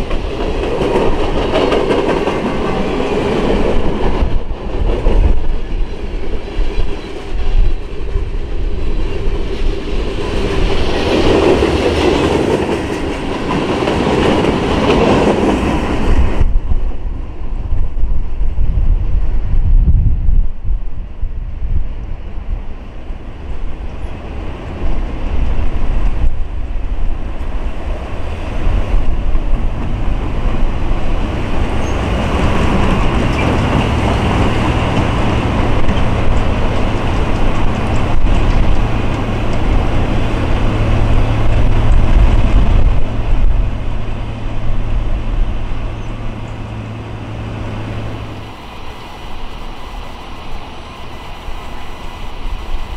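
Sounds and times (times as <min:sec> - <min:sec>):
freight train wheels rattling on rail: 0:00.0 - 0:19.7, 0:22.4 - 0:52.9.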